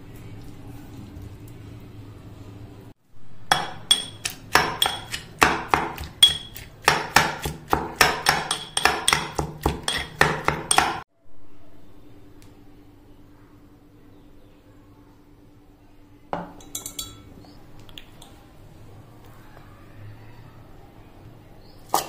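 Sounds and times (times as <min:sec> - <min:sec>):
utensil clinking on vessel: 0:03.5 - 0:05.3, 0:16.4 - 0:17.3.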